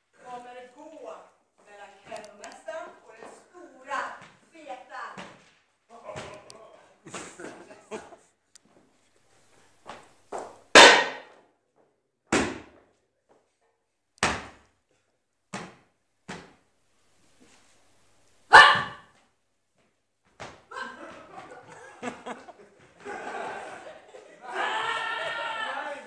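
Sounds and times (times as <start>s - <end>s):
short sharp shouts: 18.5s - 19.1s, 24.4s - 26.0s.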